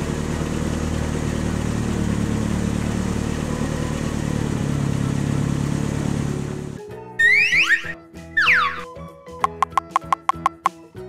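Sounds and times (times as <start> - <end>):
toy truck engine hum: 0.0 - 8.8.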